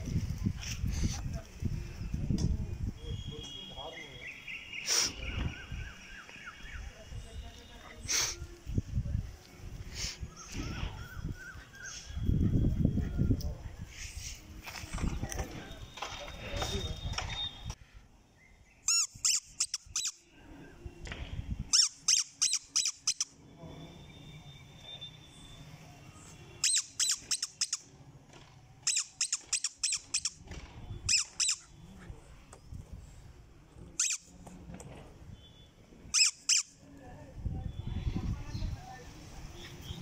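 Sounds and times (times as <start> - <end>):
squeaky rubber toy squeaks: 18.9 - 20.2, 21.7 - 23.3, 26.6 - 27.9, 28.8 - 30.4, 31.1 - 31.8, 34.0 - 34.3, 36.1 - 36.8.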